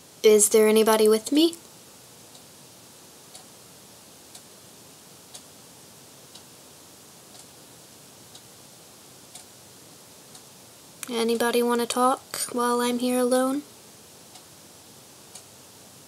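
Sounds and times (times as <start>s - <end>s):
steady hiss: 0.0s - 11.6s, 13.0s - 16.0s
clock ticking: 5.3s - 5.5s, 7.3s - 7.5s.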